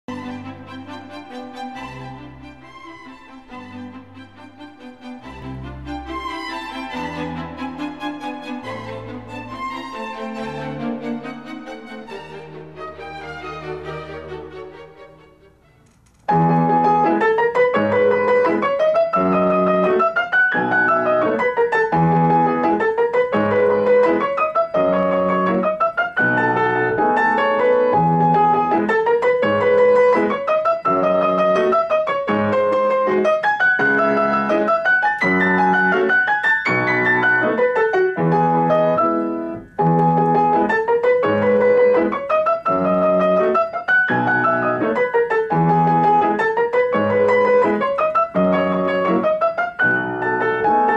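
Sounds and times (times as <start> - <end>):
solo grand piano: 0.1 - 50.9.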